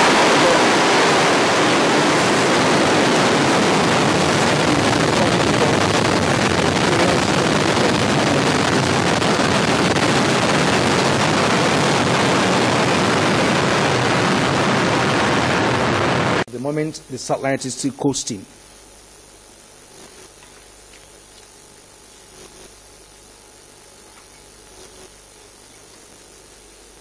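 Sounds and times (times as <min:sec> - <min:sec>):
rocket engines roaring: 0:00.0 - 0:16.5.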